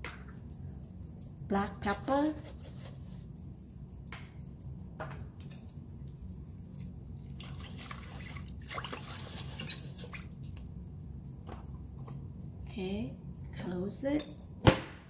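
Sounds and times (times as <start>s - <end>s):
liquid sloshing and splashing: 7.2s - 10.7s.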